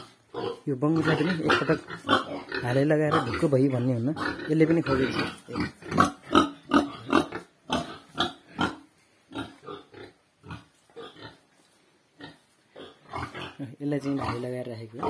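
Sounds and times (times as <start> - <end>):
pigs grunting: 0.0 - 11.4, 12.2 - 15.0.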